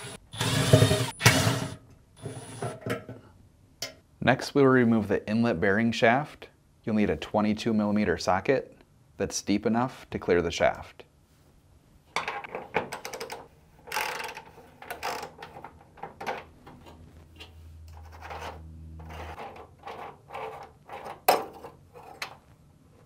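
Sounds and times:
metal clicks and scrapes: 13.0s - 22.5s
low hum: 16.6s - 19.4s.

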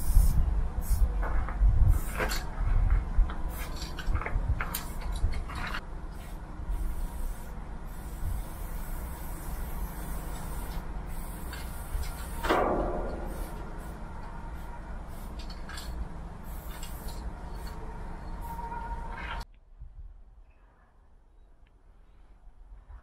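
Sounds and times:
spray-paint can hissing: 0.0s - 1.0s, 6.1s - 12.5s, 13.1s - 14.0s, 14.6s - 17.8s
low rumble: 0.0s - 21.2s.

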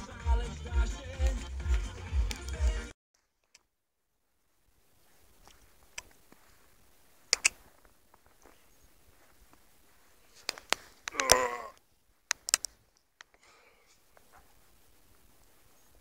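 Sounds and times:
sharp clicks and crunches: 7.2s - 8.6s, 10.3s - 13.4s.

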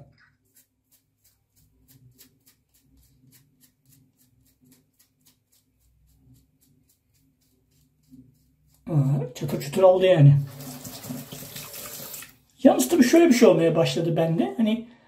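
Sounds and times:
razor scraping stubble: 0.2s - 12.2s.

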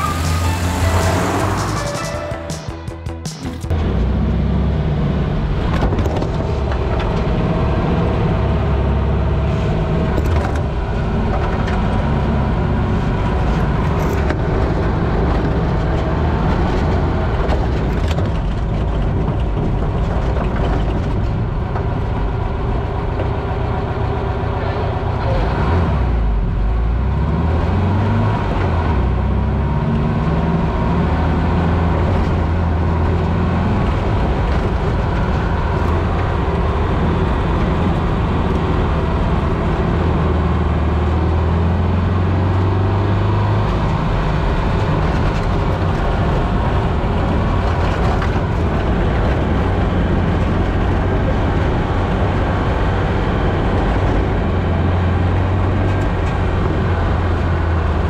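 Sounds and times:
road noise: 0.0s - 58.0s
car engine running: 28.6s - 58.0s.

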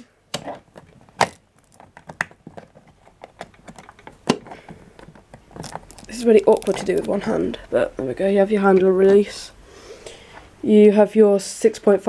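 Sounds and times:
plastic clicks and knocks: 0.0s - 7.3s.

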